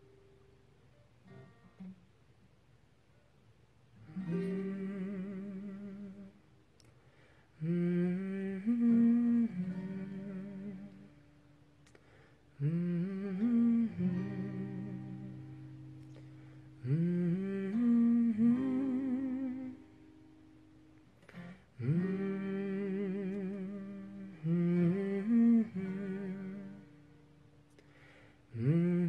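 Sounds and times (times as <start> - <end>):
acoustic guitar notes: 0.0 - 2.3, 4.0 - 29.0
man humming a melody: 4.2 - 6.4, 7.6 - 11.2, 12.6 - 20.0, 21.3 - 27.2, 28.5 - 29.0.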